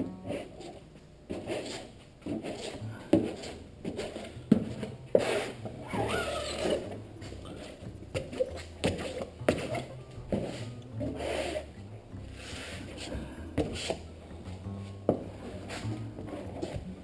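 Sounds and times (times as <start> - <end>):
low steady hum: 0.0 - 17.0
plastic card scraping fabric: 0.3 - 4.4.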